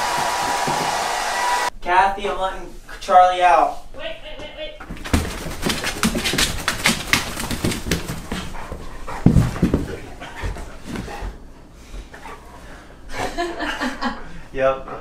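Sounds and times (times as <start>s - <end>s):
heavy thumps on wood floor: 0.1s - 1.1s, 4.8s - 11.4s
dog scuffling on towels: 5.0s - 11.1s
dog panting: 5.1s - 15.0s.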